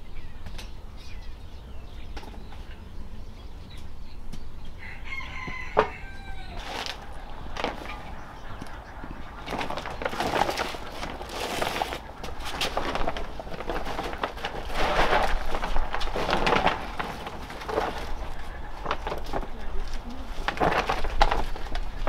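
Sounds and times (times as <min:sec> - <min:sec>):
plastic sack rustling: 0:06.1 - 0:22.0.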